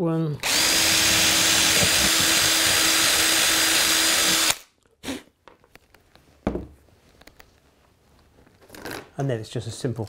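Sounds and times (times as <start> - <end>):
cordless drill boring through foam: 0.4 - 4.7.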